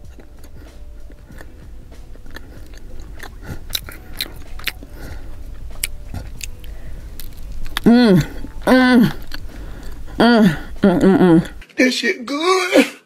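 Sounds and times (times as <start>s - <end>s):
chewing flaky pastry: 0.0s - 11.6s
crisp pastry crackles: 2.2s - 7.9s.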